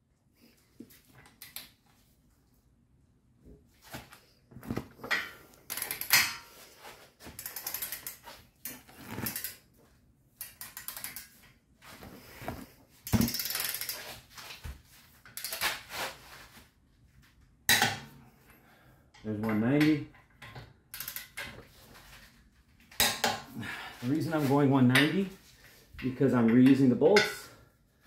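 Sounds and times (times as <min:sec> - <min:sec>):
torque wrench ratcheting: 0:13.2 - 0:14.0, 0:20.9 - 0:21.4.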